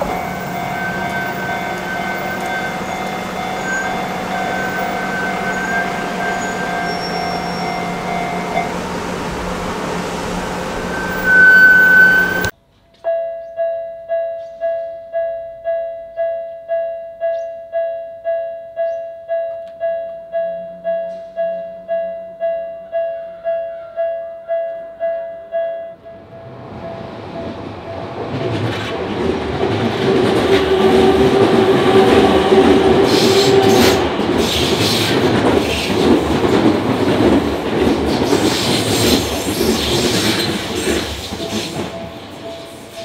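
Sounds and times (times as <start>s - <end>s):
loud high-pitched tone: 0.0s - 12.5s
railway crossing bell ringing: 0.0s - 12.5s
outdoor noise: 0.0s - 43.0s.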